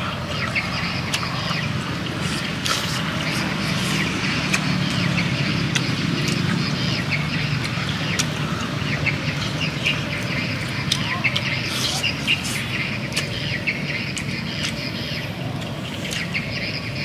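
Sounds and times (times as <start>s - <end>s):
birds chirping: 0.0s - 17.0s
steady low hum: 0.0s - 17.0s
person slurping and chewing: 0.1s - 6.7s, 11.6s - 13.3s.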